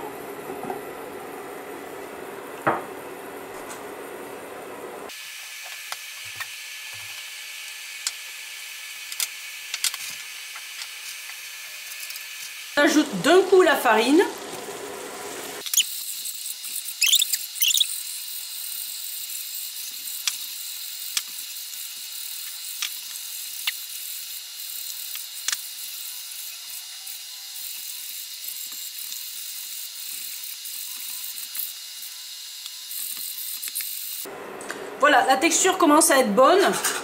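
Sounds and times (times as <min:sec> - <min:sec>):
whisk wires squeaking on pan: 0:15.6 - 0:18.0.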